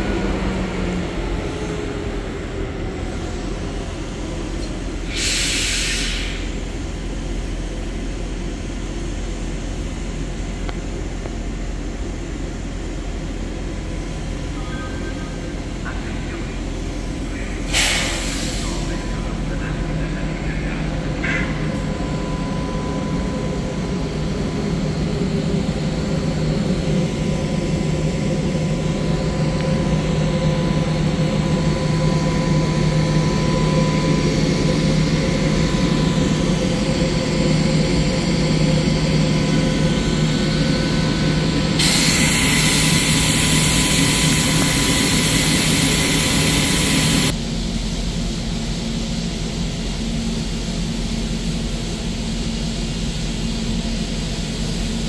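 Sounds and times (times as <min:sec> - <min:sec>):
train equipment hum: 0:00.0 - 0:55.0
loud hiss: 0:05.0 - 0:06.6, 0:17.7 - 0:19.0, 0:41.8 - 0:47.3.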